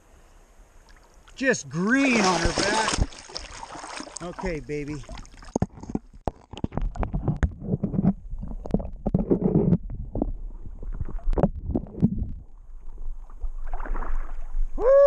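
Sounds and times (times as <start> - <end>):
muffled river water gurgling: 0.9 - 15.0
knocks and splashes: 1.9 - 12.5, 13.3 - 14.7.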